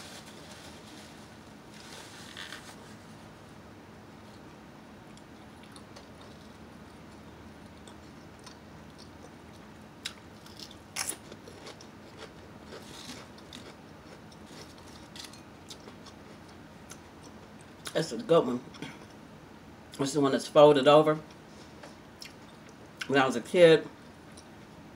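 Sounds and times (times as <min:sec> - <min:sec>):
potato chips crunching: 0:07.7 - 0:18.0.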